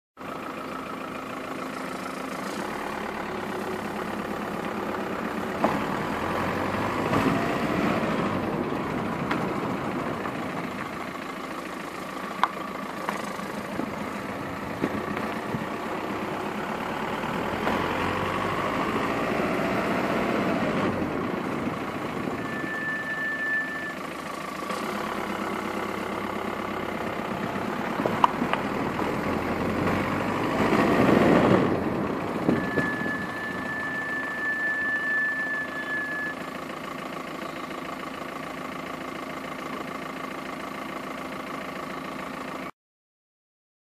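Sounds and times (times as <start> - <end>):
diesel engine and tyre noise: 0.2 - 42.8
high-pitched brake whistle: 22.4 - 24.1, 32.5 - 36.5.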